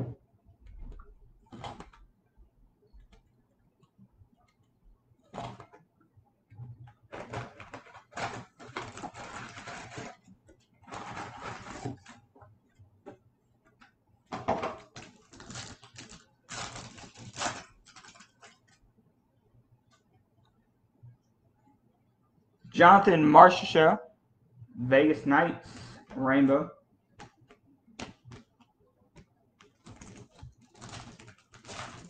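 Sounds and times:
foil pack tearing and crinkling: 0:07.1 - 0:10.2, 0:10.8 - 0:12.2, 0:14.8 - 0:18.6, 0:29.8 - 0:32.0.

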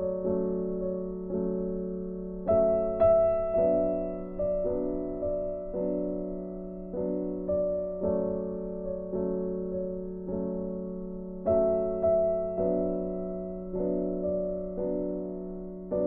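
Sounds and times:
soft piano chords: 0:00.0 - 0:16.0.

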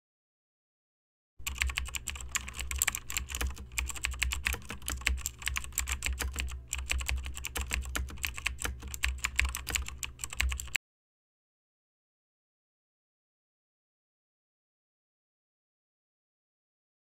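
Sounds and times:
steady low hum: 0:01.4 - 0:10.8
typing on computer keyboard: 0:01.4 - 0:10.8.

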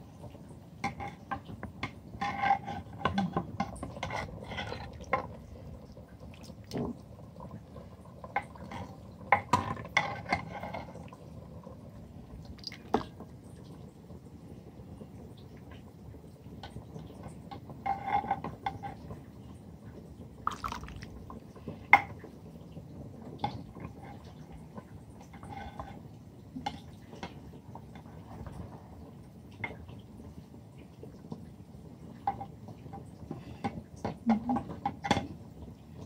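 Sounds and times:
liquid dripping and splashing: 0:06.1 - 0:07.0, 0:12.4 - 0:13.2, 0:20.5 - 0:21.3.

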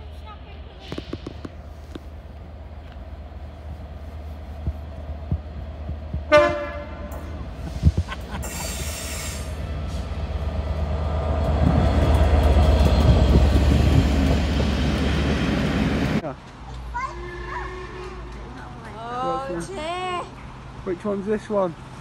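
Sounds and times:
diesel locomotive passing: 0:00.0 - 0:22.0
locomotive horn blast: 0:06.3 - 0:07.4.

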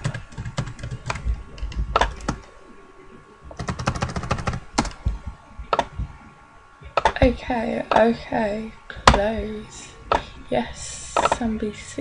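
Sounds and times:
computer keyboard typing: 0:00.0 - 0:02.5, 0:03.5 - 0:06.0.

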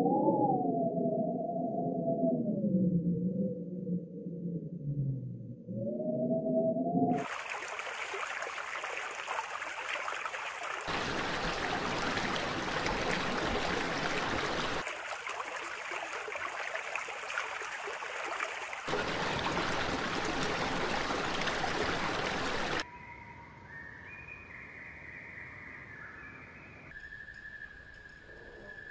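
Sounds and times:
running water rushing: 0:07.2 - 0:22.8
whistle-like high tones: 0:26.9 - 0:28.9.

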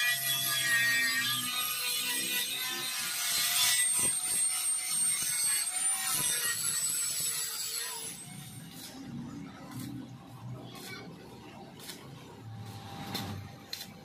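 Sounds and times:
angle grinder grinding metal: 0:00.0 - 0:09.1.

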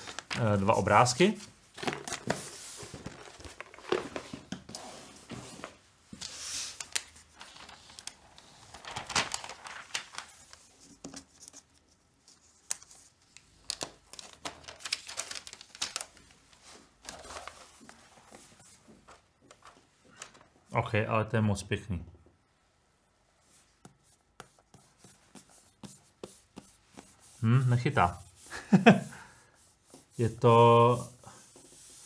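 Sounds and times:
paper wrap rustling and crinkling: 0:00.0 - 0:20.5.

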